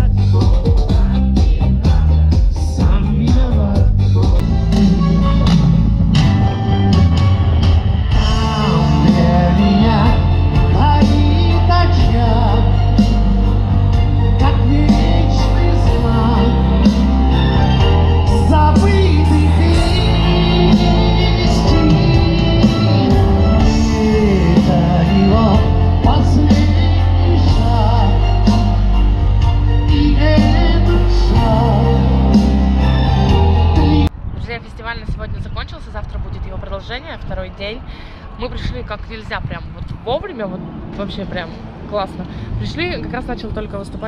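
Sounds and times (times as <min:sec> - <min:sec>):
man singing: 0:00.0 - 0:05.8, 0:08.0 - 0:34.1
live rock band: 0:00.0 - 0:34.1.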